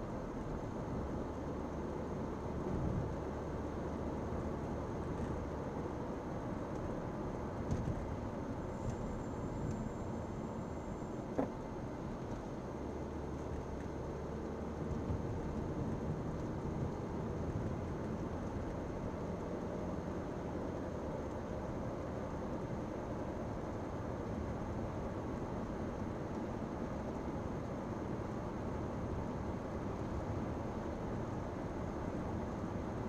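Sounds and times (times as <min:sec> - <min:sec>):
car road and engine noise: 0:00.0 - 0:33.0.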